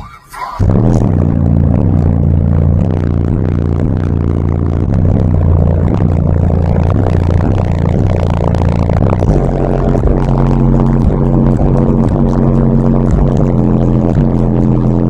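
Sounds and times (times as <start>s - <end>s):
bass-heavy music through subwoofers: 0.0s - 15.0s.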